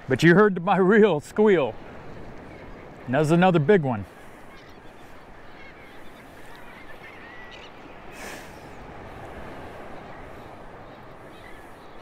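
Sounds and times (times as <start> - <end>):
shallow surf: 0.0 - 12.0
wind: 0.0 - 12.0
faint wavering bird calls: 4.0 - 12.0.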